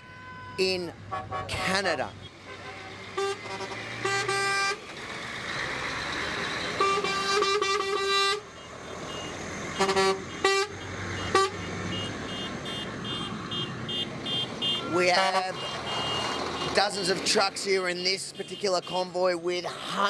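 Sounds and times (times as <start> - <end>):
truck horn honking: 0.0 - 4.9, 6.6 - 16.9, 18.3 - 19.1
passing traffic: 0.0 - 20.0.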